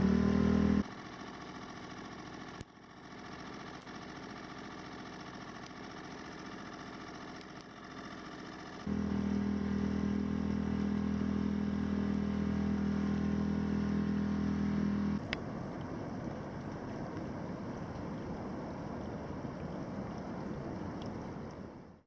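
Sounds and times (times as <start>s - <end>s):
boat engine running: 0.0s - 22.0s
rushing water and wind: 15.2s - 22.0s.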